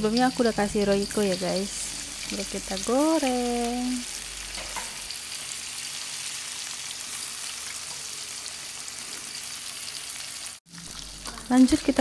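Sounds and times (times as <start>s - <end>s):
slices frying in hot oil: 0.0s - 12.0s.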